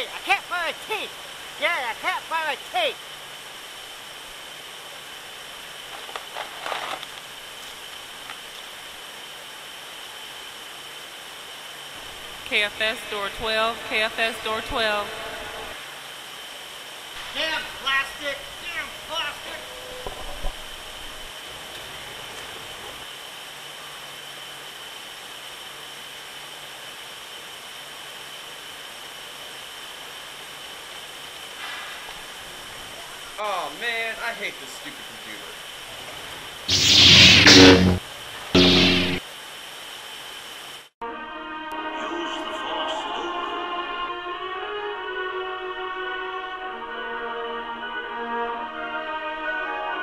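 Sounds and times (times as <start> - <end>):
background hiss: 0.0 - 41.0
thin high constant tone: 17.1 - 20.0.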